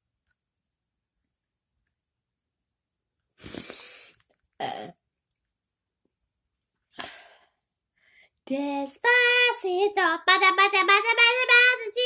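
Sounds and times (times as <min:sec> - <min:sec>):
breathy hissing exhale: 0:03.4 - 0:04.2.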